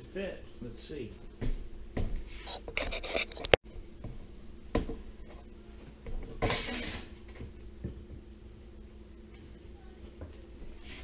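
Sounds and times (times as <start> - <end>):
drywall rustling and scraping: 2.1 - 3.6, 6.1 - 7.2.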